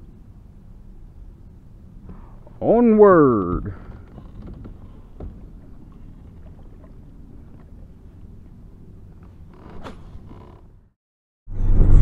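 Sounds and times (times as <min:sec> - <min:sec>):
faint water noise: 0:00.0 - 0:10.9
low rumble: 0:11.5 - 0:12.0.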